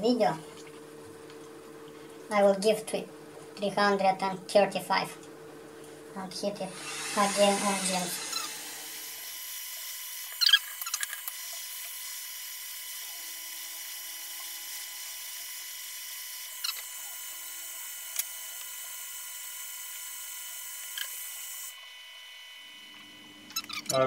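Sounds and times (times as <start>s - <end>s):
hot air blower hissing: 6.4s - 10.1s.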